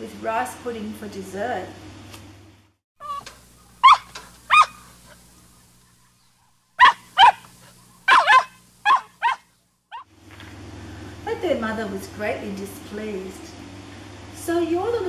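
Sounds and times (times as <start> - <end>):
small dog yapping: 3.0 - 5.2, 6.8 - 10.1.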